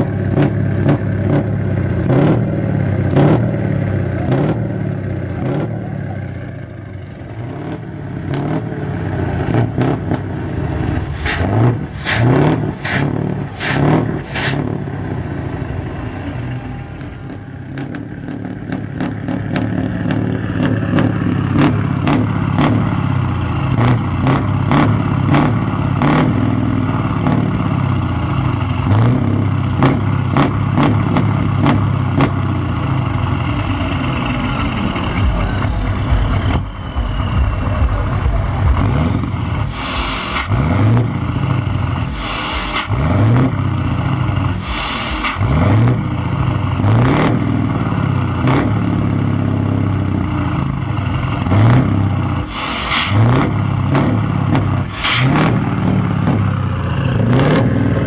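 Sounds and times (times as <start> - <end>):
diesel truck engine revving: 0.0 - 58.0
air hiss: 39.7 - 40.6, 42.1 - 43.0, 44.6 - 45.5, 52.5 - 53.2.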